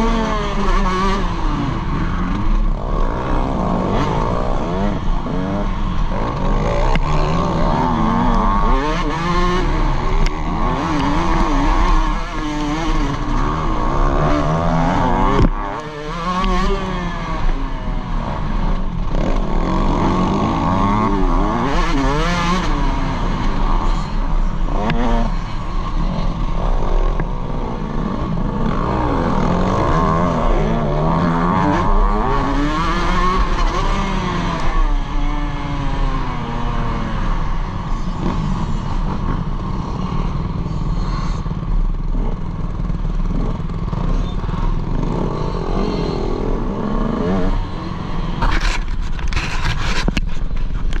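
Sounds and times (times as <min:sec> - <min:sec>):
dirt bike engine revving: 0:00.0 - 0:48.9.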